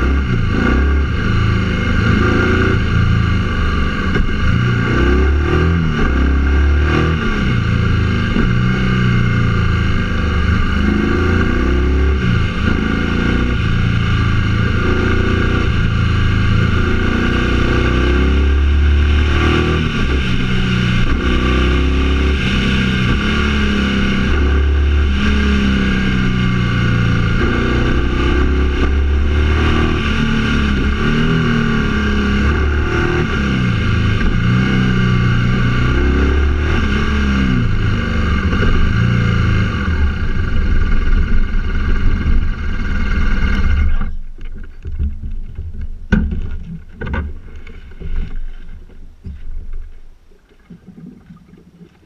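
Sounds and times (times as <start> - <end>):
vehicle engine running: 0.0 - 50.8
knocks: 44.8 - 47.4.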